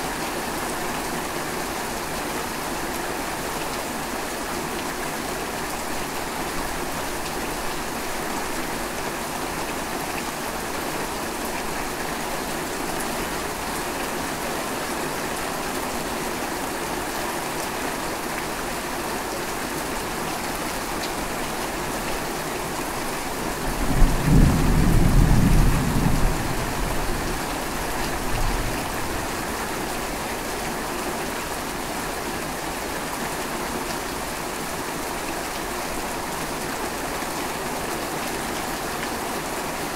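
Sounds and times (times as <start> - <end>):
steady rain falling: 0.0 - 39.9
thunder rumbling: 23.8 - 27.4.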